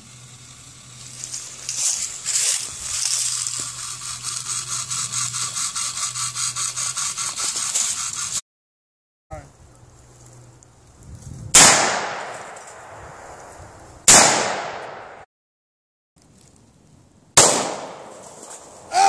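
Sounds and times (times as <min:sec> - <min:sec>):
rifle shots: 0:11.6 - 0:13.0, 0:14.1 - 0:15.2, 0:17.4 - 0:18.2.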